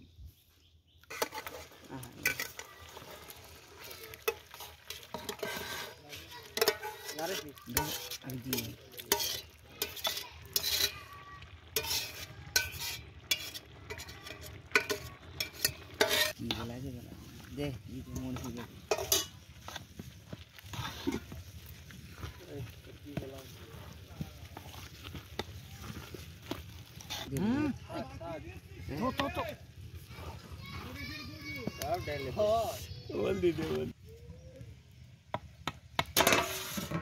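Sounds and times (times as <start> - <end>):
wooden spatula scraping metal pot: 1.0 - 28.2, 28.9 - 33.9, 36.0 - 37.0
food sizzling: 1.0 - 34.2, 35.3 - 37.0
spatula clacking against metal: 6.5 - 11.0, 11.7 - 16.4, 18.9 - 19.3.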